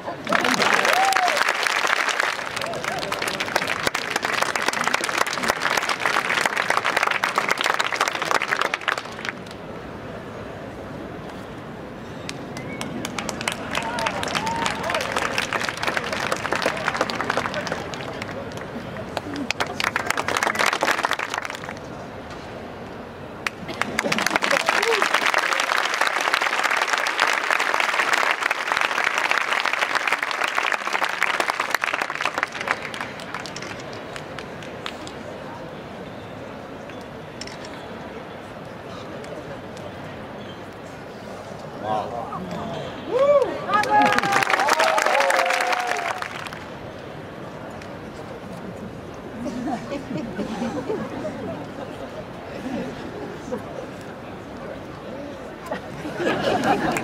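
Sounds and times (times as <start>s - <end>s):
audience applauding: 0.0s - 9.6s, 12.6s - 21.8s, 23.4s - 35.1s, 43.3s - 46.7s, 56.2s - 57.0s.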